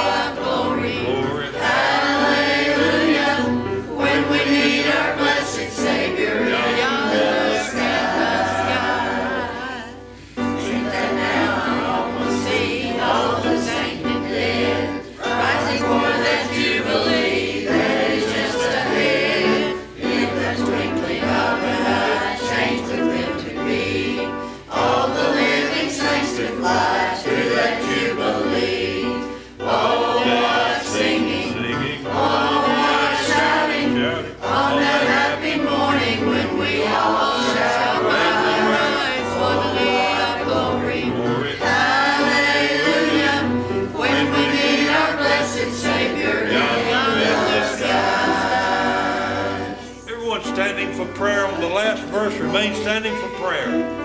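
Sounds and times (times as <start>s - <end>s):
church choir singing a hymn: 0.0s - 54.0s.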